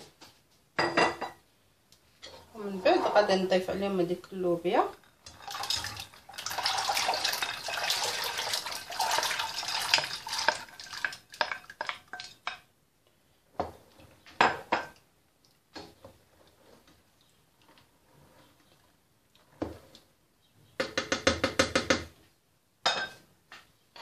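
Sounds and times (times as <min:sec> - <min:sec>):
beans rattling and splashing: 0:05.0 - 0:12.5
wooden spoon knocking pot: 0:20.8 - 0:22.1.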